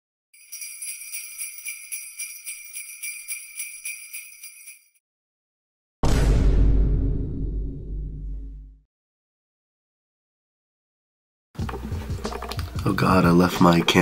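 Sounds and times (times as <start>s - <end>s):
sleigh bells shaking: 0.4s - 5.0s
deep boom: 6.0s - 8.8s.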